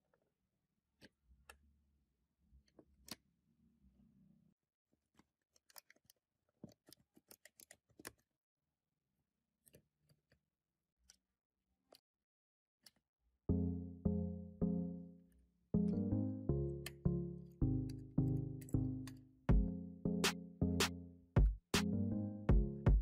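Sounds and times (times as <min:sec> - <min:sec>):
plastic parts clicking: 0:05.0 - 0:08.3, 0:09.6 - 0:10.4, 0:11.0 - 0:12.1, 0:12.8 - 0:13.0.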